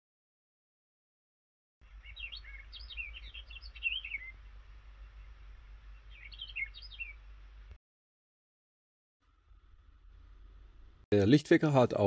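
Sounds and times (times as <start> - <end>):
low hum: 1.8 - 7.8, 9.2 - 11.1
recorded birdsong chirping: 1.8 - 7.8.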